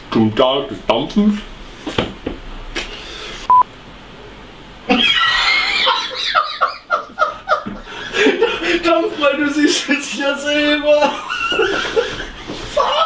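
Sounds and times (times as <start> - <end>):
breathy exhale: 2.8 - 3.5
short electronic beep: 3.5 - 3.7
person laughing: 4.9 - 9.2, 11.0 - 13.0.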